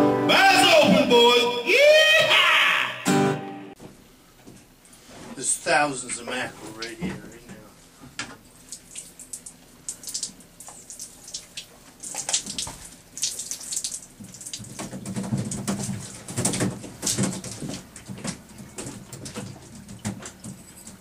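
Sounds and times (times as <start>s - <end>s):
water splashing and dripping: 8.4s - 21.0s.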